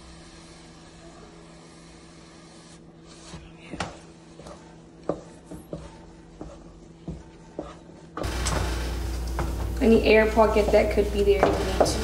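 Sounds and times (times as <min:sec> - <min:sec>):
steady low hum: 0:00.0 - 0:12.0
wooden spoon scraping a pan: 0:03.0 - 0:12.0.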